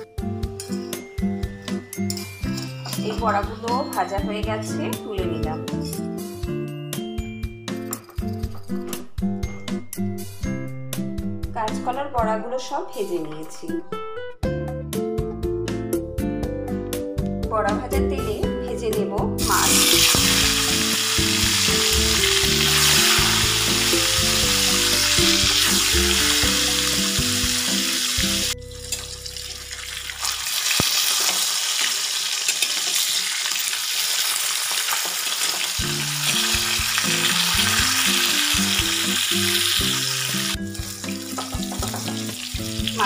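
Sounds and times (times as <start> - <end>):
fish deep-frying in hot oil: 19.4 - 43.0.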